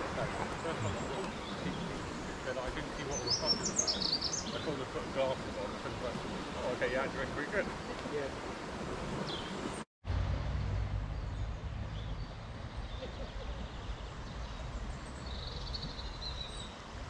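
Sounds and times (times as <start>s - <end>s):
small birds chirping: 0.0s - 8.3s, 9.1s - 9.8s, 11.2s - 17.0s
river rushing hiss: 0.0s - 9.8s
wind rumble on microphone: 0.0s - 17.0s
bird trill: 0.6s - 4.8s.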